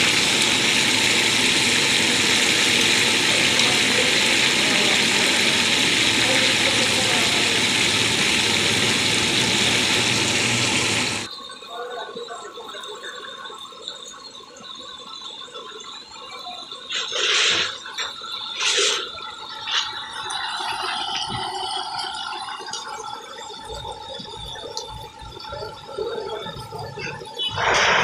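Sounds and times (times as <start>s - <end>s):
chicken deep-frying in oil: 0.0s - 11.3s.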